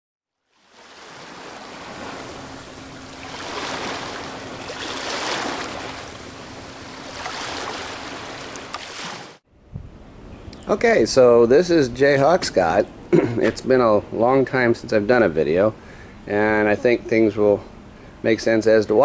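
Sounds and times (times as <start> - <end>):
ocean waves washing: 0.5 - 9.4
faint steady hum: 0.7 - 8.8, 9.5 - 19.0.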